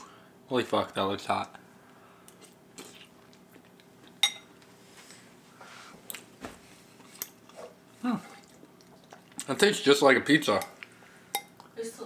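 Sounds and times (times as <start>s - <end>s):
person chewing food: 2.2s - 4.8s, 6.0s - 9.6s.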